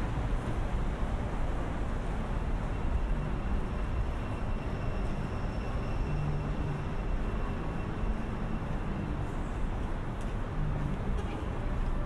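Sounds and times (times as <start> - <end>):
faint high whine: 0.0 - 11.7
city traffic rumble: 0.0 - 12.0.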